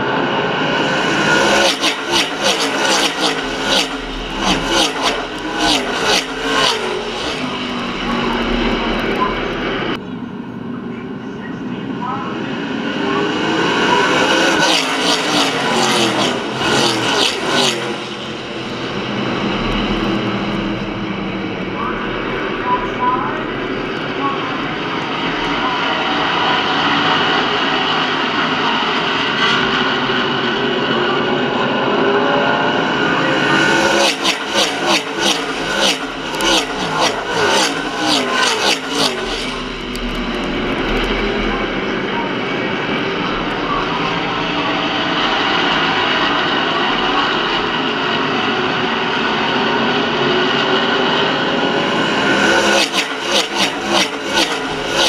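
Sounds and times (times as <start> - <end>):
distant engine drone: 0.0 - 55.0
race car engines passing: 0.0 - 55.0.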